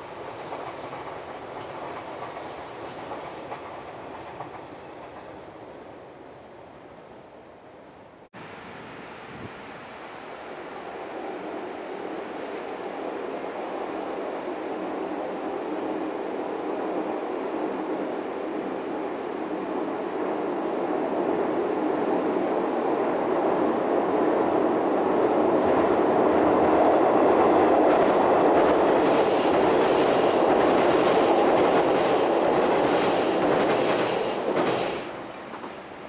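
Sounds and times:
clickety-clack over rail joints: 0.0 - 5.4, 26.6 - 35.9
train wheels rumbling on bridge: 0.0 - 5.9, 14.9 - 36.0.

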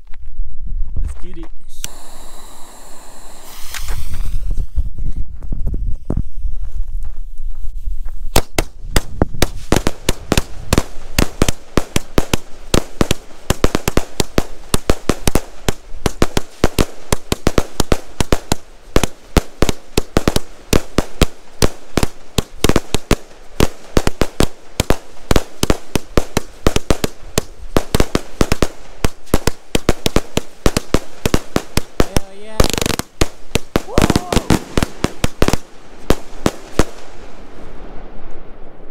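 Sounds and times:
fireworks cake bangs and pops: 8.3 - 37.2.

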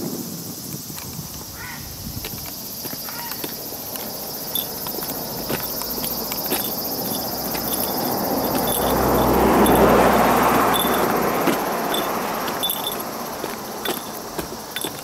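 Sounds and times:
cicadas droning: 0.0 - 15.0
footsteps on paved path: 0.7 - 15.0
car approaching: 3.6 - 15.0.

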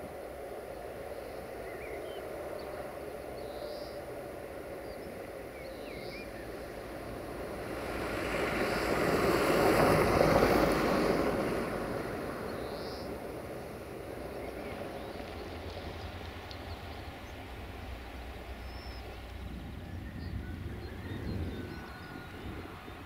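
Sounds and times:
diesel railcar passing: 0.0 - 23.0
birds chirping: 1.1 - 7.2, 12.4 - 23.0.

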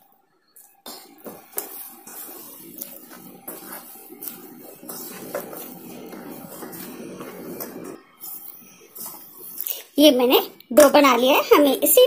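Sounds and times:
dough squishing: 0.6 - 11.1.

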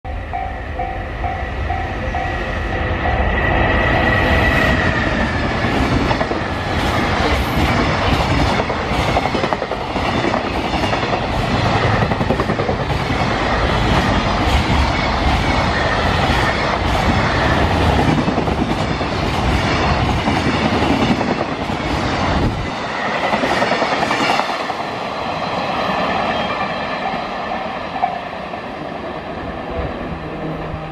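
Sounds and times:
high steady tone: 0.1 - 5.2
freight train rumbling past: 0.1 - 30.9.

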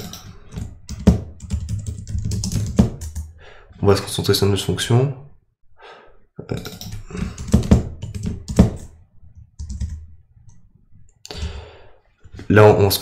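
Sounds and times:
keyboard typing clicks: 0.0 - 3.3, 6.5 - 8.9.

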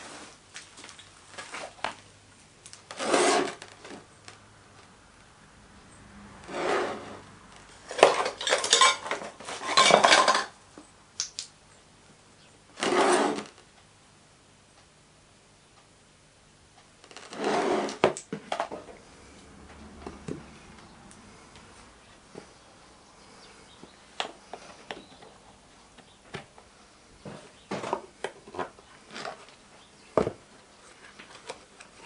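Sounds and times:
metal tools scraping rustle: 7.9 - 10.6.

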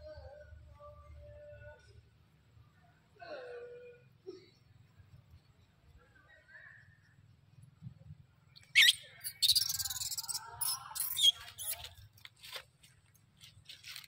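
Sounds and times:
young monkey squealing: 8.6 - 11.9
short squeaks: 8.6 - 12.0.

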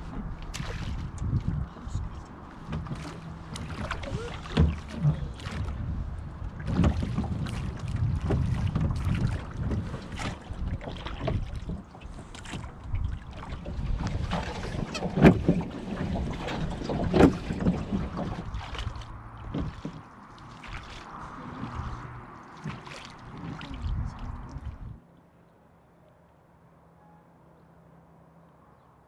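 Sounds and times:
wind buffeting microphone: 0.0 - 19.9, 20.6 - 25.0
oars in oarlocks: 0.0 - 25.0
oars dipping into water: 0.0 - 25.3.

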